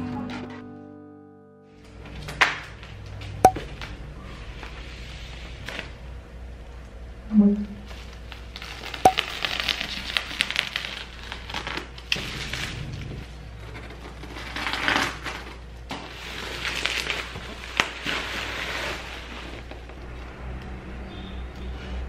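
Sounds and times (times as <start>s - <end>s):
bubble wrap crinkling and popping: 7.9s - 13.2s, 14.2s - 20.0s.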